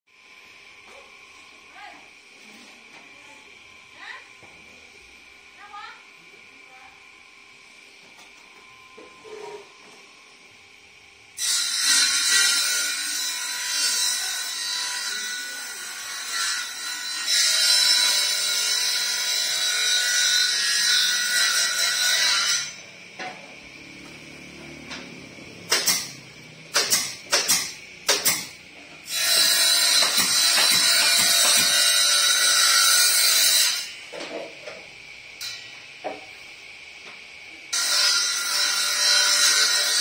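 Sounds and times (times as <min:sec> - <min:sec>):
power tool cutting wood: 0:11.4 - 0:34.6, 0:37.7 - 0:40.0.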